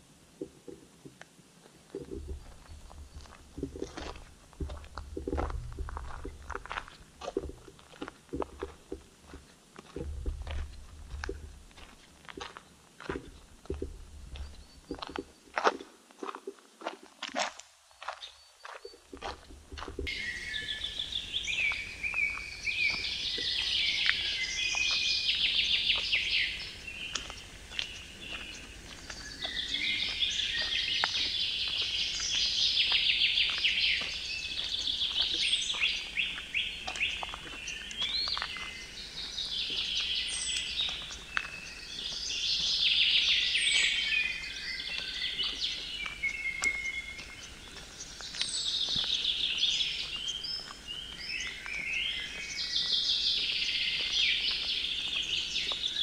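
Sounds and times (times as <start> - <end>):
footsteps on gravel: 0.4 - 56.0
songbird trilling: 20.0 - 56.0.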